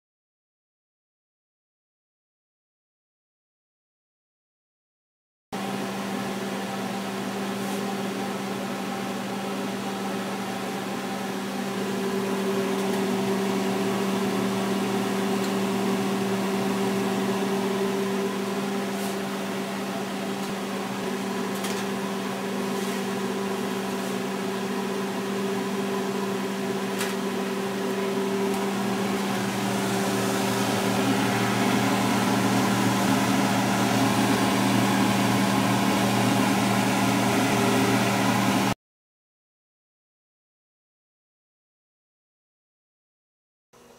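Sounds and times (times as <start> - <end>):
machine hum with hiss: 5.6 - 38.8.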